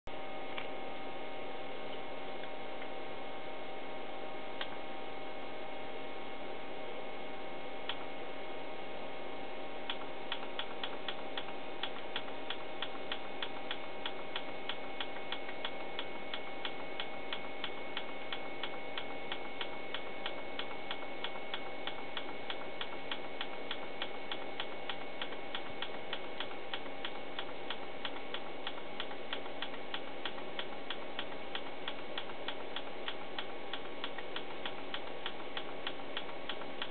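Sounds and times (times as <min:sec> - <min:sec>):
steady hum: 0:00.1 - 0:36.9
oscilloscope clicking: 0:09.9 - 0:36.9.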